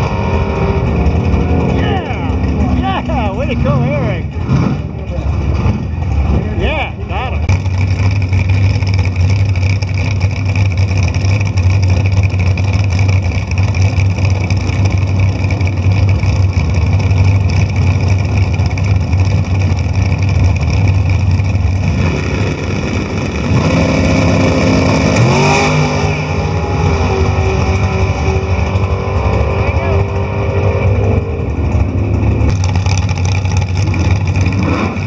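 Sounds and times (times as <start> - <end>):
dragster engine revving: 0.0 - 35.0.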